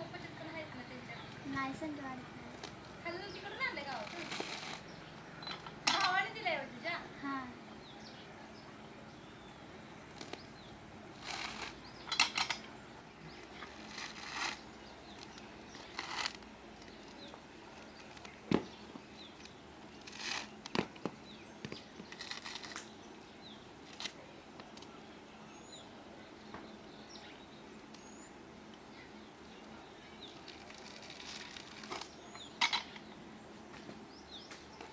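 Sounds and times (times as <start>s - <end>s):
coconut husk tearing: 3.9s - 4.9s, 10.1s - 10.5s, 11.1s - 11.8s, 13.5s - 17.2s, 20.0s - 20.9s, 22.1s - 23.0s, 23.8s - 24.2s, 30.4s - 32.2s.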